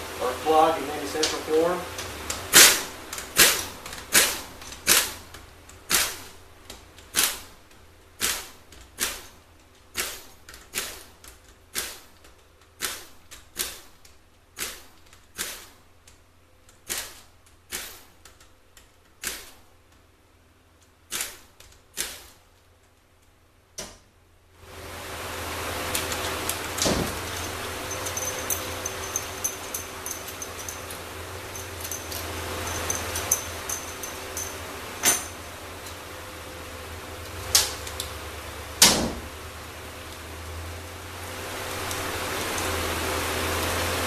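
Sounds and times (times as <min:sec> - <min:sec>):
pneumatic air ratchet bursts: 0:02.5 - 0:05.2, 0:15.4 - 0:15.7.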